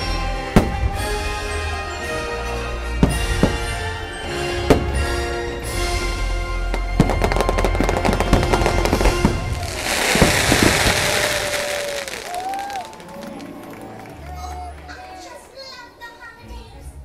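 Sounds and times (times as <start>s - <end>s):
show music: 0.0s - 16.9s
firework crackling: 6.8s - 13.2s.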